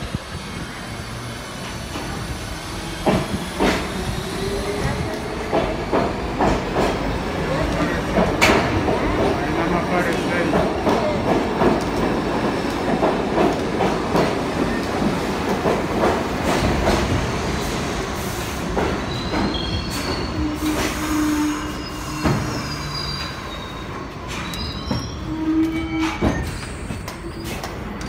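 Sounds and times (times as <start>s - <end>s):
high brake squeals: 19.1s - 27.8s.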